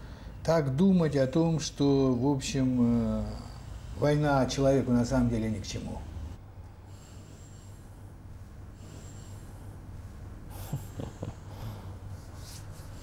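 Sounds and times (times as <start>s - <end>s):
steady low hum: 0.0s - 13.0s
person snorting a laugh: 10.5s - 11.9s.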